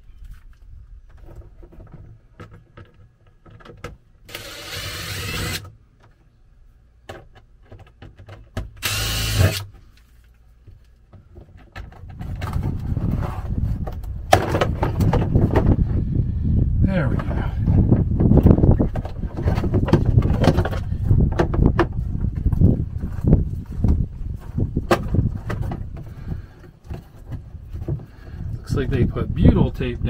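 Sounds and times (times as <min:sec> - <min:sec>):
cordless drill running: 0:04.3 - 0:05.6, 0:08.8 - 0:09.7.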